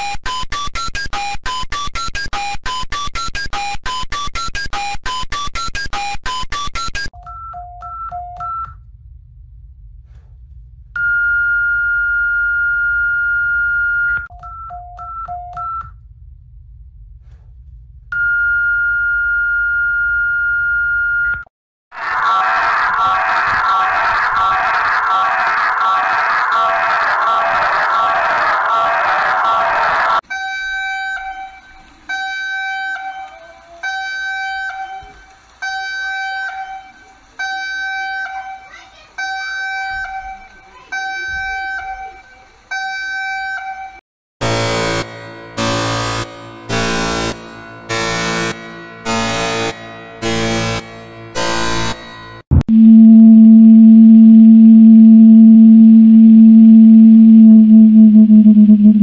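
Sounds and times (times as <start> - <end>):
electronic alarm beeps: 0.0 - 8.7
faint low rumble: 8.8 - 11.0, 16.0 - 18.2, 52.5 - 59.0
steady high alarm tone: 22.0 - 31.3, 44.4 - 59.0.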